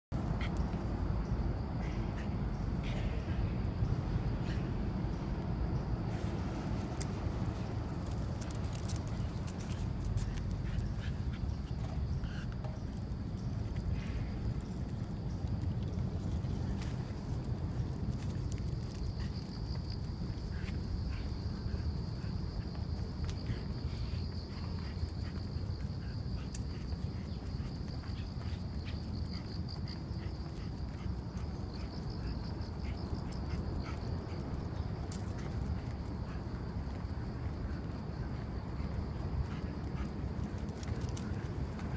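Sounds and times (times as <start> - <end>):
footsteps on pavement: 0.2 - 41.9
insects trilling: 0.2 - 41.9
light clicks and rustles: 6.5 - 21.3.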